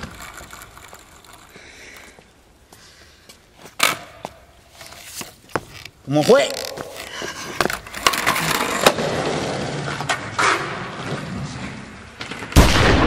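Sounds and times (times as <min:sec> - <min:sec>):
skateboard wheels rolling on concrete: 0:00.0 - 0:12.6
loud echoing bang: 0:12.6 - 0:13.0.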